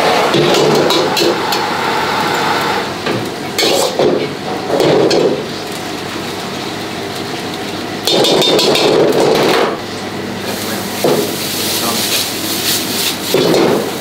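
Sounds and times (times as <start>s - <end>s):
gas burner rushing: 0.0s - 14.0s
vegetables sizzling: 10.4s - 14.0s.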